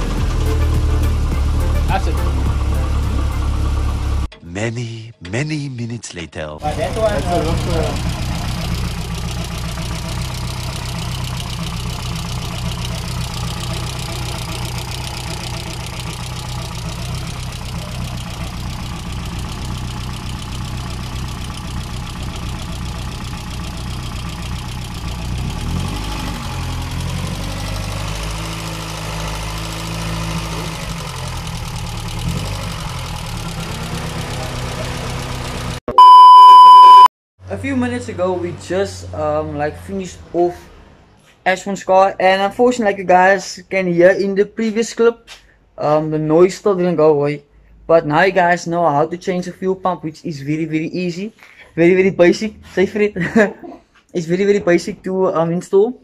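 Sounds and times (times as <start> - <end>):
car engine idling: 0.0 - 4.3, 6.6 - 35.8
engine lifter tapping: 6.9 - 25.4.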